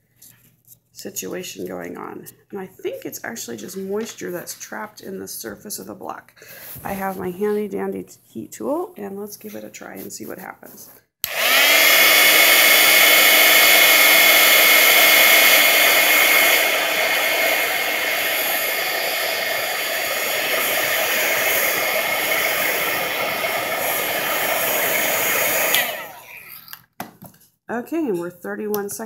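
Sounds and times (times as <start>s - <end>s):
heat tool fan whine: 11.2s - 26.4s.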